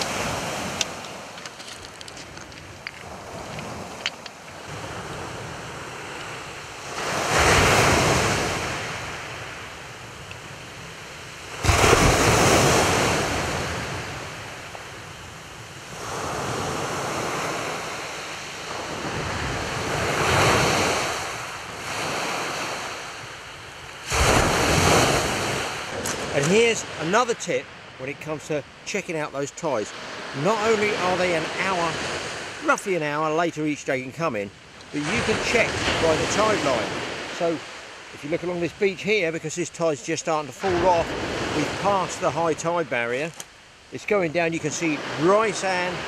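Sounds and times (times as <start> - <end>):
waves breaking on shingle: 0.0 - 4.5, 11.5 - 13.6.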